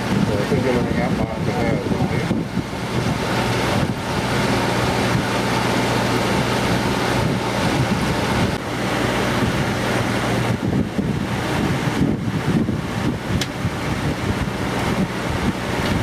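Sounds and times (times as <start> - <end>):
boat engine running: 0.0 - 16.0
wind noise on microphone: 0.0 - 16.0
water rushing past: 0.9 - 16.0.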